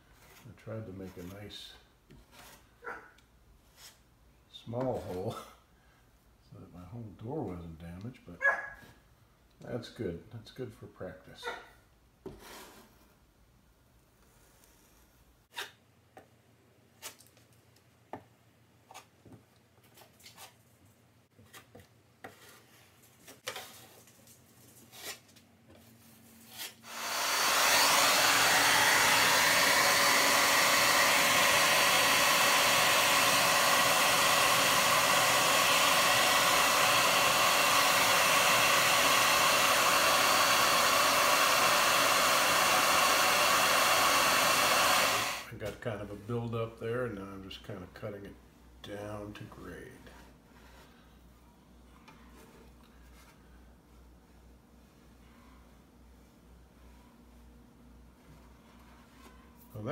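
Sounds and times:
hair dryer running: 26.8s - 45.5s.

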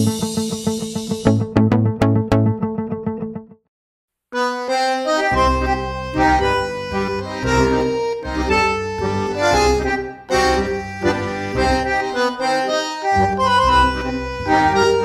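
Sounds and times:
background music with bass beat: 0.0s - 2.6s.

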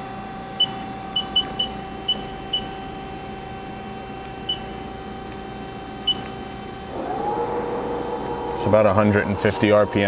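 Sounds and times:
machine tool idling hum: 6.7s - 10.0s.

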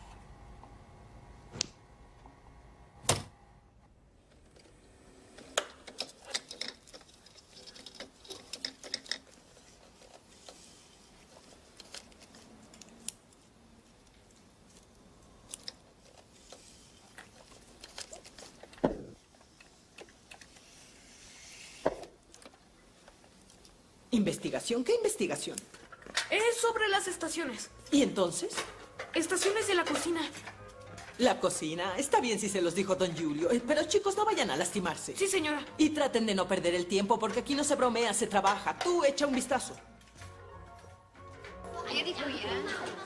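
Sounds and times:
tape recorder hum: 0.0s - 6.1s.

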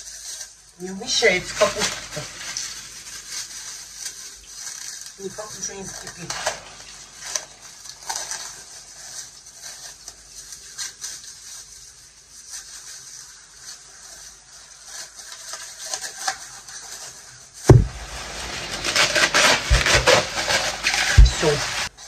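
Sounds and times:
knife cutting cabbage: 13.7s - 22.0s
loud thump: 17.7s - 18.2s.

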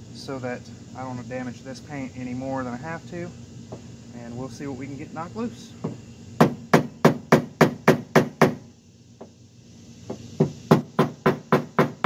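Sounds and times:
hammer knocking on metal: 5.8s - 8.6s, 10.1s - 12.0s.

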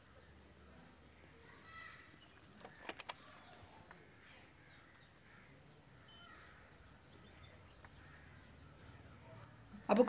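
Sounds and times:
distant crows cawing: 4.0s - 10.0s.

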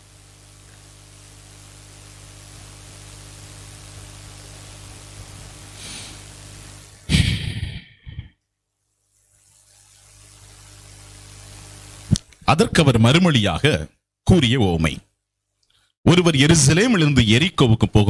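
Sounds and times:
electrical hum and hiss: 0.0s - 15.0s
breath blown into microphone: 5.7s - 6.3s, 7.1s - 8.3s.

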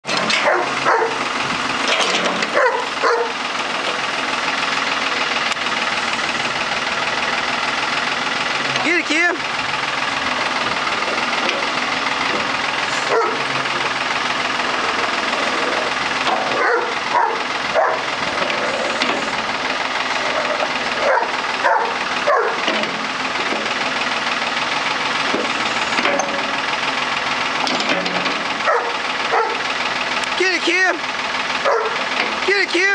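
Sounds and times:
backhoe engine running: 0.0s - 32.9s
dog barking: 0.4s - 1.2s, 2.6s - 3.4s, 13.1s - 13.4s, 16.6s - 18.1s, 21.0s - 22.6s, 28.6s - 29.6s, 31.6s - 32.0s.

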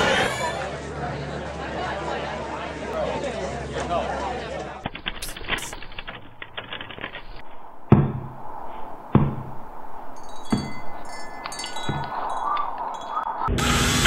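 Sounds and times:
chimes ringing: 9.6s - 13.6s
high tinkling chime tones: 10.0s - 13.5s.

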